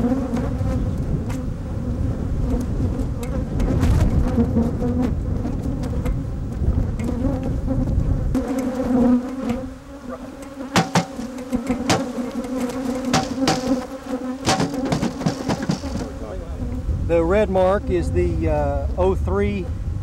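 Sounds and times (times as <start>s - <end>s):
honeybees buzzing: 0.0s - 18.4s
sharp knocks on a tray: 10.8s - 12.1s, 13.1s - 13.8s, 14.4s - 16.1s.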